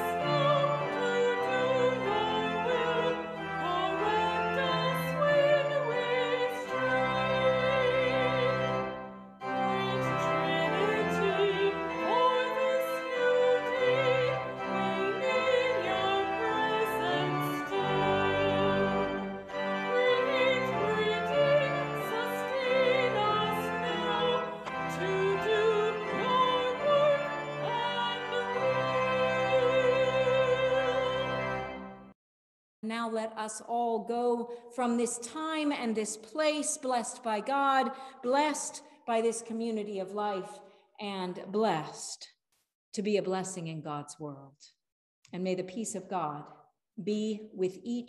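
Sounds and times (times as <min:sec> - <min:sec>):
woman singing a hymn: 0:00.0 - 0:08.9, 0:09.5 - 0:31.6, 0:32.9 - 0:42.0
sustained instrumental accompaniment: 0:00.0 - 0:32.1.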